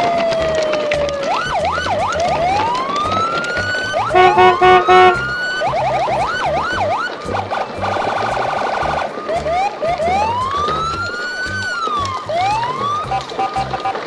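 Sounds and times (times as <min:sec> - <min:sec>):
police siren wailing and yelping: 0:00.0 - 0:14.0
music beat: 0:04.0 - 0:06.4
loud beeps: 0:04.1 - 0:05.3.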